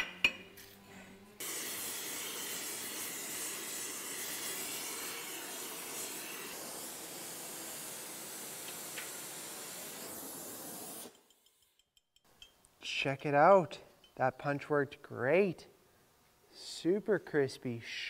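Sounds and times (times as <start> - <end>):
gas torch flame hissing: 1.4 - 11.2.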